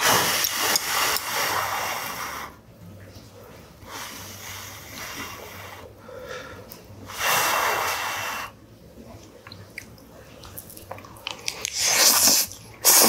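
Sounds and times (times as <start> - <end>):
man breathing: 3.9 - 7.9.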